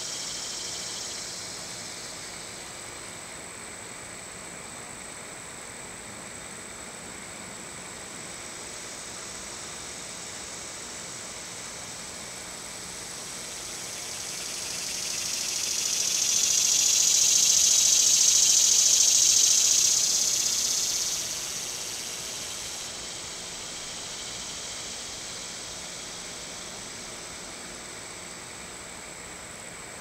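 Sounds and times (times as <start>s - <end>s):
cicada buzzing: 0.0s - 2.7s, 8.4s - 28.7s
steady high-pitched whine: 0.0s - 30.0s.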